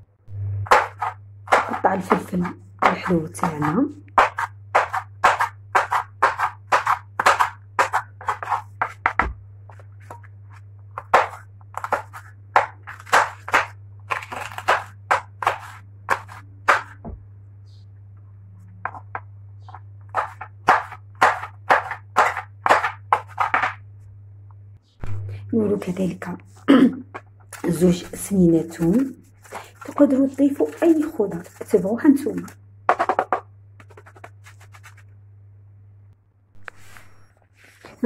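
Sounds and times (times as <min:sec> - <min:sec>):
steady low hum: 0:00.0 - 0:38.0
knife chopping on wooden board: 0:00.7 - 0:09.4, 0:11.0 - 0:17.2, 0:18.8 - 0:23.8.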